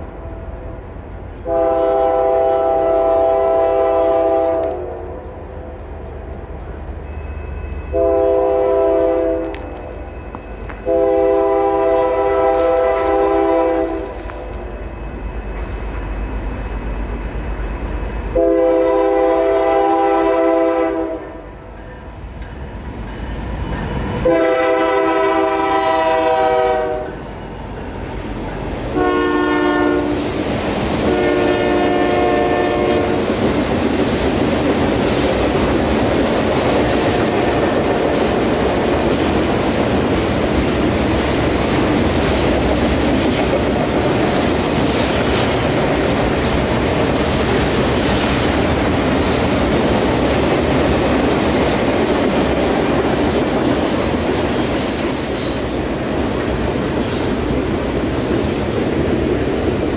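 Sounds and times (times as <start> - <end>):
train wheels rumbling on rail: 0.0 - 59.9
locomotive air horn blasts: 1.4 - 5.0, 7.9 - 9.7, 10.8 - 14.2, 18.3 - 21.4, 24.2 - 27.2, 28.9 - 30.2, 31.0 - 33.2.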